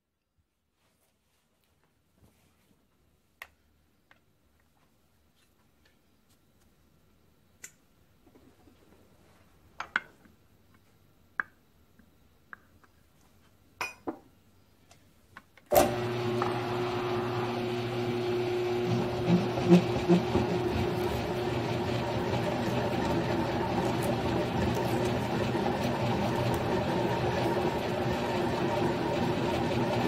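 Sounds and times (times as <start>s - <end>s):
milling machine motor humming: 15.8s - 30.0s.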